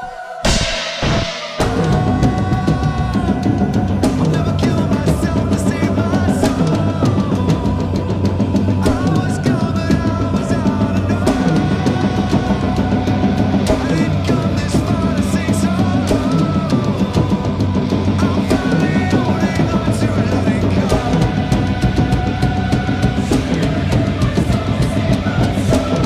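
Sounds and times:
cymbals crashing: 0.0s - 4.3s
heavy metal song: 0.0s - 26.0s.

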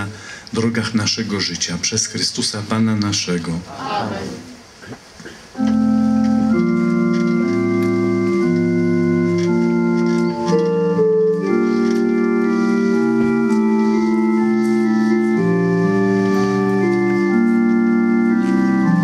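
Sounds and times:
organ playing slow chords: 5.5s - 19.0s.

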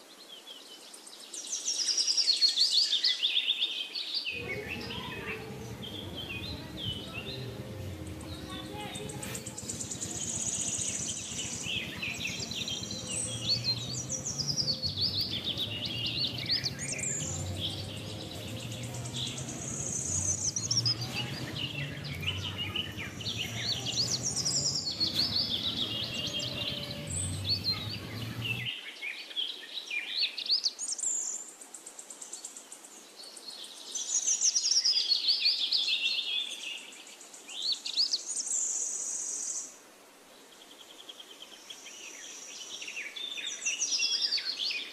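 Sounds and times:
songbirds chirping and warbling: 0.0s - 44.9s
low hum: 4.4s - 28.7s.

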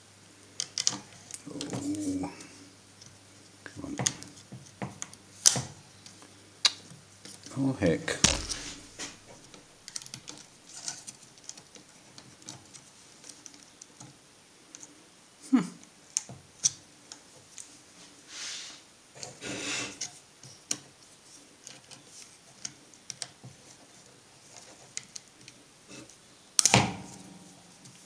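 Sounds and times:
scraping rubs: 8.3s - 9.5s, 18.0s - 20.2s.

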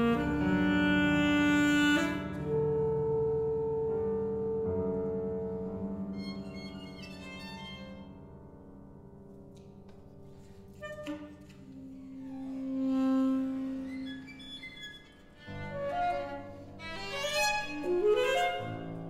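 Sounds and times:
saxophone: 0.0s - 7.0s, 10.7s - 19.0s
piano: 0.0s - 19.0s
violin: 6.0s - 8.2s, 10.7s - 19.0s.

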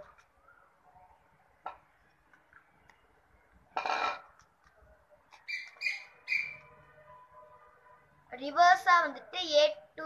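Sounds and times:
quick high chirps: 5.4s - 6.7s.

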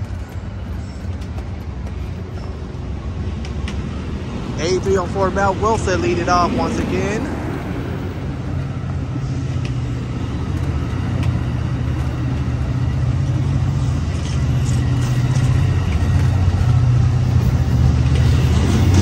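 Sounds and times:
diesel locomotive drone: 0.0s - 19.0s
train coaches rolling on rails: 0.0s - 19.0s.

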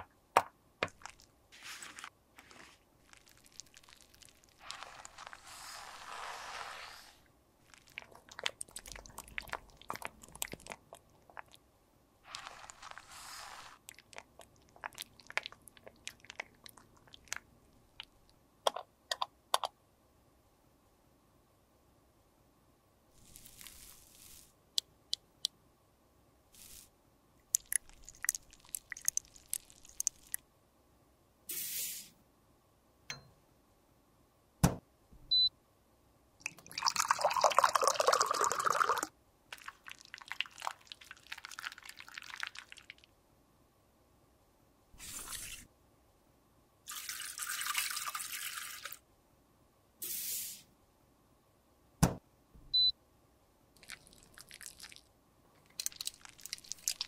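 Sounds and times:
rustling: 1.0s - 8.1s, 12.2s - 13.8s, 23.2s - 24.6s
short hissing scraping strokes: 4.6s - 7.2s, 12.3s - 13.8s, 31.5s - 32.1s, 45.0s - 45.7s, 50.0s - 50.7s.

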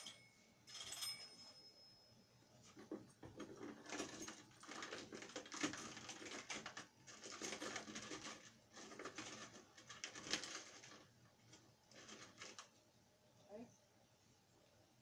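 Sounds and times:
keys clicking and rattling: 2.7s - 8.4s.

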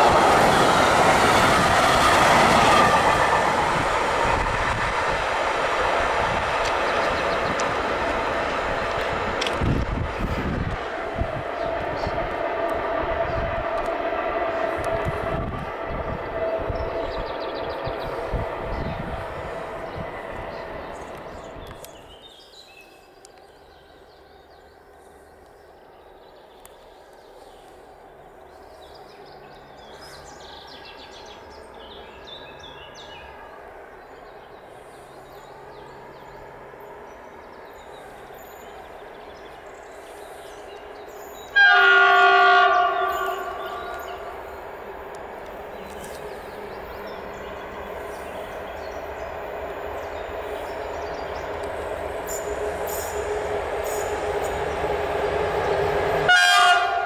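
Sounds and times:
freight train rumble: 0.0s - 57.0s
locomotive horn blast: 41.5s - 44.3s, 56.2s - 57.0s.

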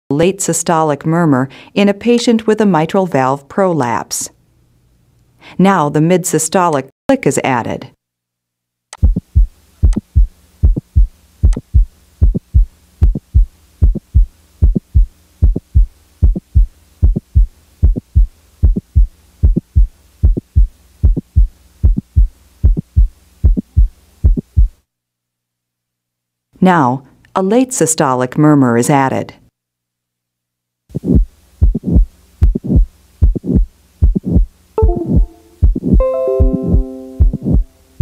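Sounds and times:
heart click: 9.0s - 24.8s, 31.0s - 37.7s
heartbeat lub-dub: 9.0s - 24.8s, 30.9s - 37.8s.

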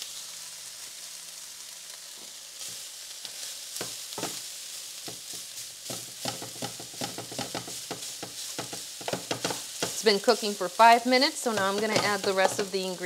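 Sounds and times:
meat sizzling in a pan: 0.0s - 13.0s
wooden spoon scraping a pan: 2.7s - 4.4s, 5.0s - 13.0s.

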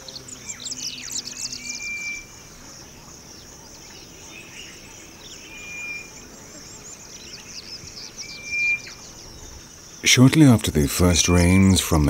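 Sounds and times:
birds chirping and twittering: 0.0s - 12.0s
high insect drone: 0.0s - 12.0s
bird whistled notes: 0.4s - 2.4s, 5.3s - 6.2s, 7.3s - 9.1s, 11.1s - 11.9s.

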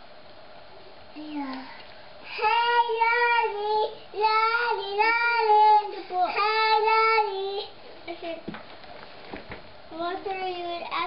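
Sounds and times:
toddler singing: 2.3s - 7.8s.

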